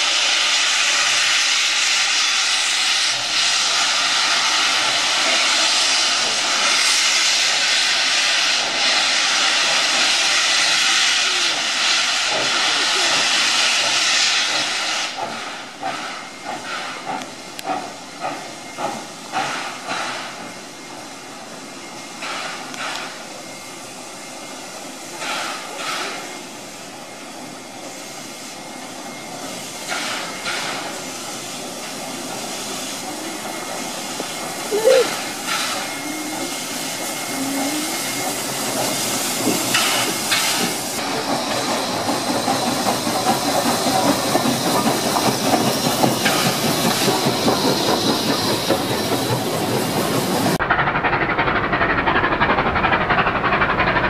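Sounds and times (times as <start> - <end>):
steam hissing: 0.0 - 54.0
short clacks of train: 11.8 - 23.4, 25.0 - 26.4, 29.2 - 36.0, 37.9 - 54.0.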